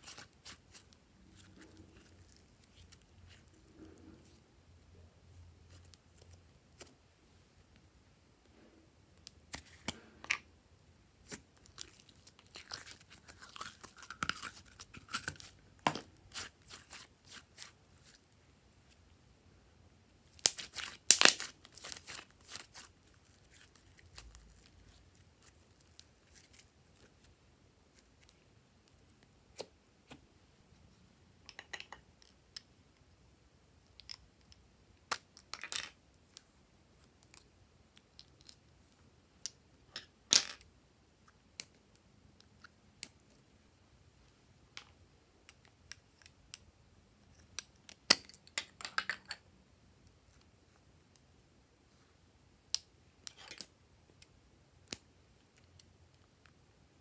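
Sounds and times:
slime crackling and popping: 20.4 - 22.9.

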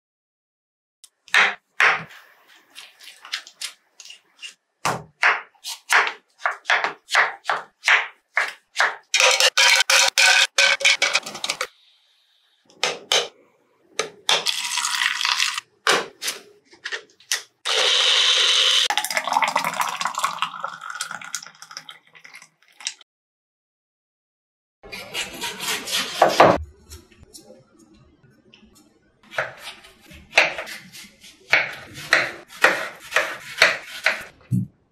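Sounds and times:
knife chopping on wooden board: 3.4 - 9.1, 29.3 - 34.7.

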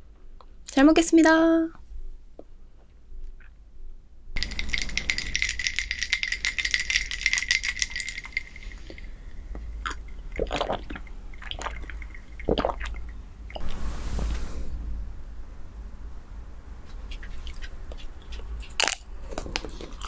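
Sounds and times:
ice cubes clinking in glass mug: 4.4 - 10.0
sips and swallows: 7.7 - 13.8.

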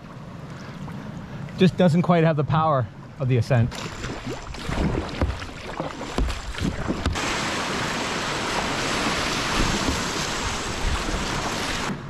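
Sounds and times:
paddle strokes splashing: 3.7 - 12.0
whitewater rushing: 4.2 - 12.0.

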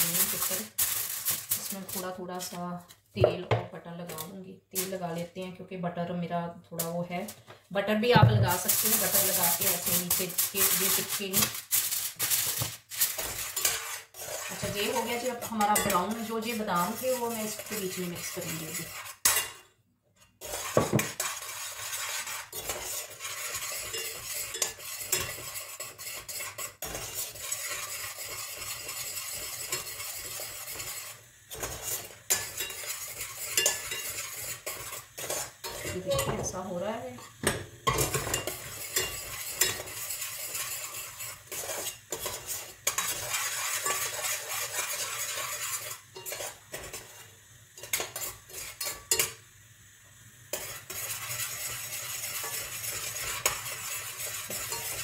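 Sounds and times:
caramel sizzling: 0.0 - 2.8, 8.0 - 55.0
stirring and scraping in a pan: 0.0 - 5.5, 6.8 - 49.5, 50.1 - 55.0
utensil clinking against pan: 32.3 - 36.6.

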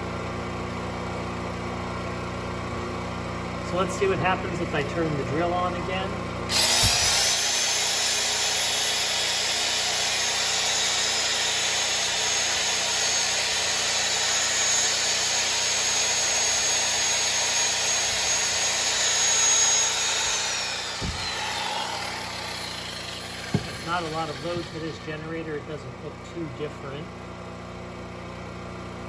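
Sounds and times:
electric drill motor whining: 6.5 - 25.7.

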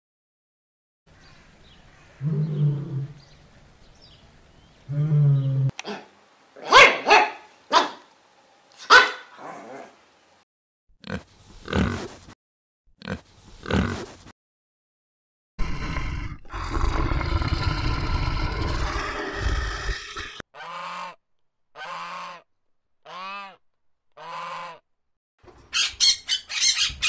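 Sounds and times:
bears growling: 4.9 - 6.1, 15.6 - 20.4
wild boar squealing and grunting: 15.6 - 20.8.

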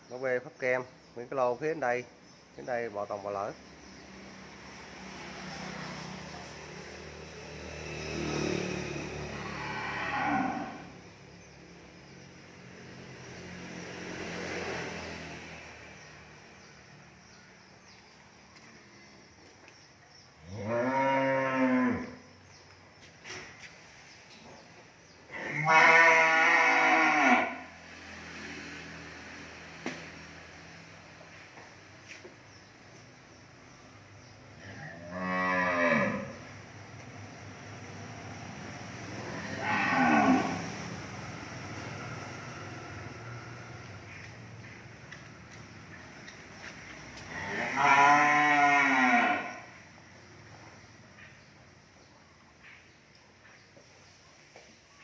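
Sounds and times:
cow mooing: 9.2 - 10.9, 20.5 - 22.2, 25.4 - 27.7, 34.7 - 36.4, 39.2 - 40.7, 47.3 - 49.7.

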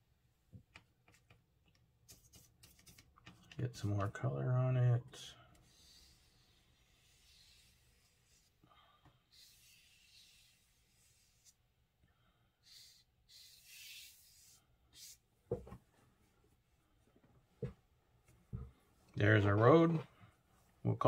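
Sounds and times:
paintbrush swishing on paper: 5.6 - 8.6, 9.3 - 11.6, 12.6 - 15.2.

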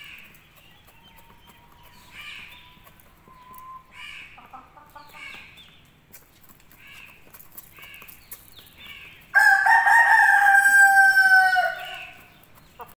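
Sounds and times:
rooster crowing: 9.4 - 12.2.

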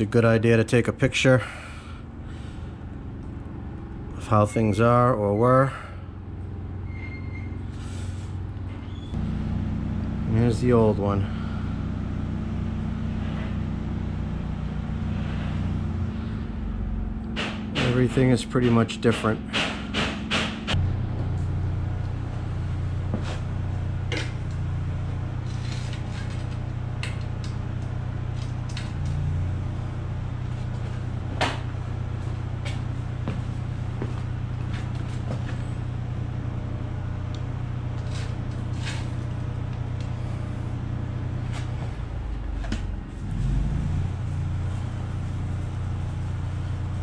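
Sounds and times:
low mechanical drone: 0.0 - 47.0.

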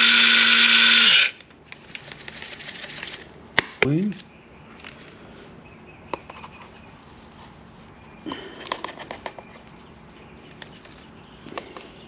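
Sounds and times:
rustling: 6.3 - 12.0.

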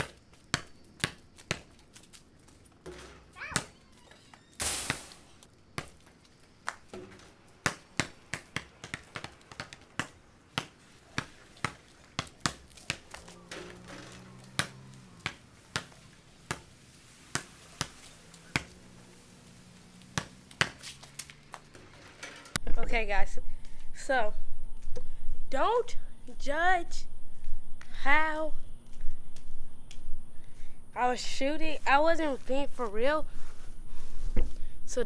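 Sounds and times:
basketball bouncing on pavement: 0.0 - 2.2, 2.8 - 4.2, 4.8 - 22.0.

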